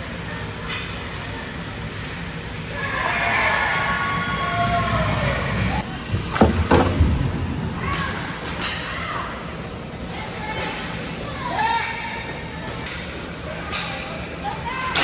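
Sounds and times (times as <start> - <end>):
low rumble of hockey play: 0.0 - 15.0
spectators shouting: 2.7 - 5.8.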